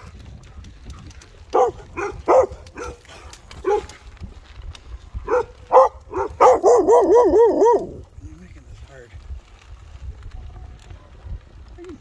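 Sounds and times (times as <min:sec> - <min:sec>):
dog barking: 0:01.5 - 0:04.0, 0:05.3 - 0:08.0.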